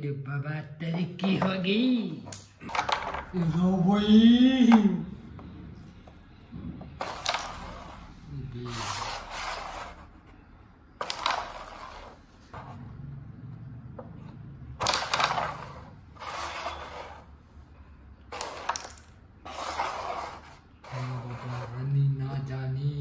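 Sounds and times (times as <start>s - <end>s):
pieces sliding over wooden board: 7.0s - 10.3s, 11.0s - 12.8s, 14.8s - 17.4s, 18.3s - 21.8s
carrom striker clacking coins: 11.0s - 12.2s, 18.3s - 19.2s.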